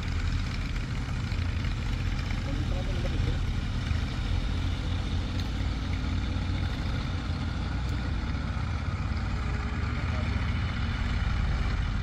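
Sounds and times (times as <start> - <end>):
heavy diesel engine running: 0.0 - 12.0.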